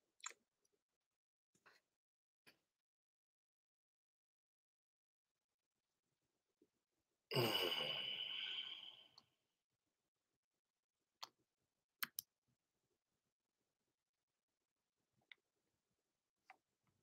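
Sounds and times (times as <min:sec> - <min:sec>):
faint computer mouse clicks: 0:12.0 - 0:12.3.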